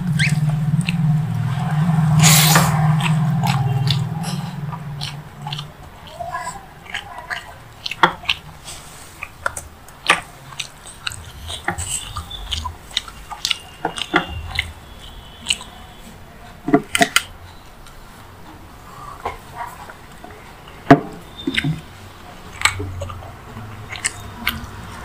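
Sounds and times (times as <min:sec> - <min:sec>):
wet lip smacks: 0:00.0 - 0:16.0, 0:21.3 - 0:21.9, 0:22.5 - 0:25.0
sharp mouth clicks: 0:00.0 - 0:16.1, 0:21.2 - 0:21.9, 0:22.5 - 0:25.0
close chewing: 0:00.0 - 0:25.0.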